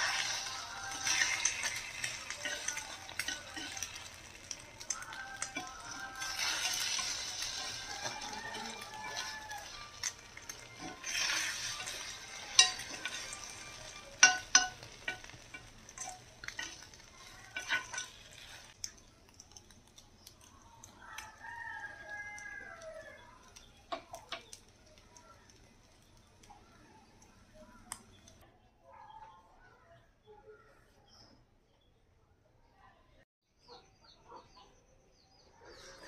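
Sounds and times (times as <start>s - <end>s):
utensil clinking against pan: 0.0s - 18.7s
batter sizzling in a pan: 0.0s - 28.4s
rooster crowing: 5.1s - 10.1s, 21.0s - 23.4s.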